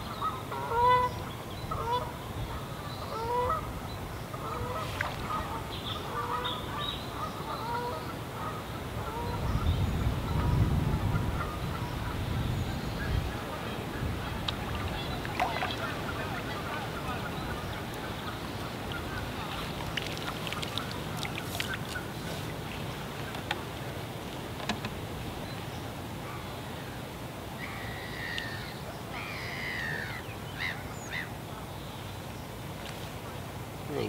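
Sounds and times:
low outdoor background noise: 0.0 - 34.0
bird calls: 11.4 - 23.6, 27.6 - 32.2.

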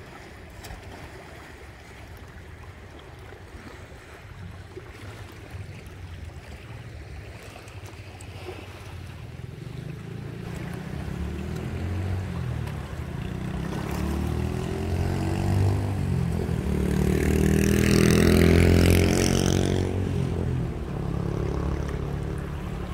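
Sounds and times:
engine passing by: 8.5 - 22.9.

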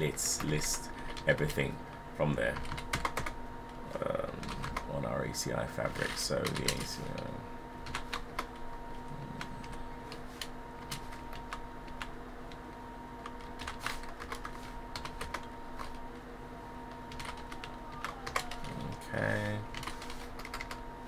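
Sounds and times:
faint steady hum: 0.0 - 21.0
typing on computer keyboard: 2.5 - 3.4, 4.4 - 4.9, 6.4 - 8.6, 13.3 - 16.0, 17.1 - 19.0, 19.7 - 20.8.

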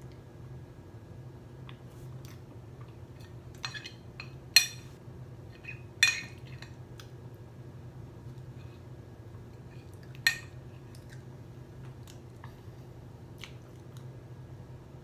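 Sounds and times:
metal spoon clinking on glass dish: 3.6 - 4.9.

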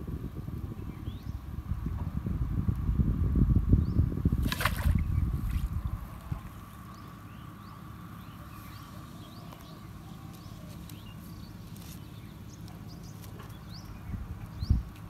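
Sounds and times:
steady low rumble: 0.0 - 15.0
small birds chirping: 3.8 - 15.0.

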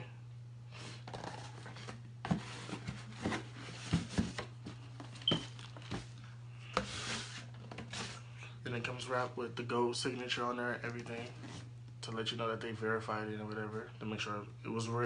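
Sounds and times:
steady low hum: 0.0 - 15.0
cardboard box knocks and scrapes: 2.2 - 4.4
paper rustling: 6.8 - 8.2.

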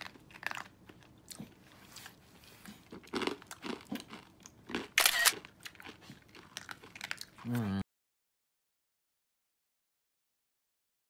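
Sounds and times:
dog crunching a hard cookie: 0.0 - 7.5.

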